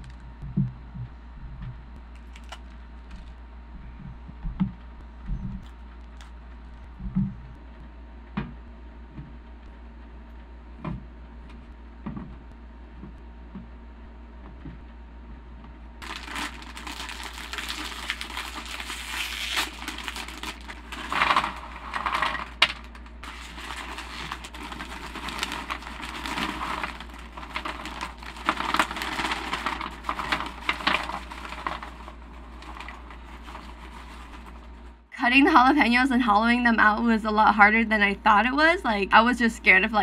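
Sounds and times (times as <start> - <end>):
foil chip bag crinkling: 2.2 - 3.3, 16.0 - 34.9.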